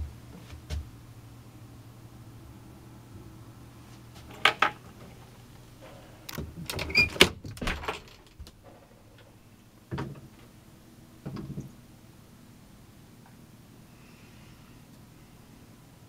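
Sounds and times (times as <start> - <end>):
wooden fittings knocking and clattering: 11.2 - 11.7.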